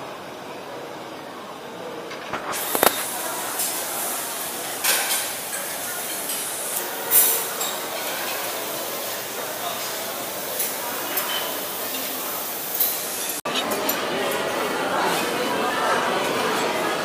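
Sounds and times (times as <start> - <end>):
crowd chatter: 0.0 - 17.0
dishes and cutlery clattering: 4.7 - 8.7, 10.6 - 14.5.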